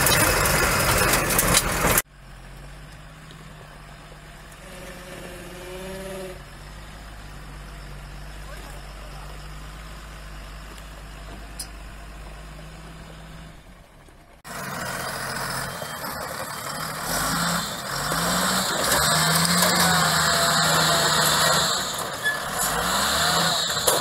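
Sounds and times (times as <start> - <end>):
diesel truck engine: 0.0 - 24.0.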